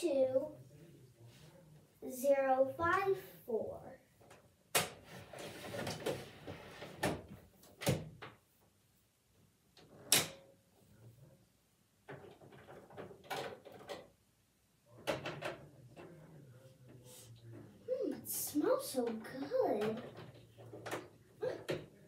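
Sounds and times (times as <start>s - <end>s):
plastic toy clunks and knocks: 12.1s - 14.1s, 15.0s - 16.2s, 19.8s - 22.0s.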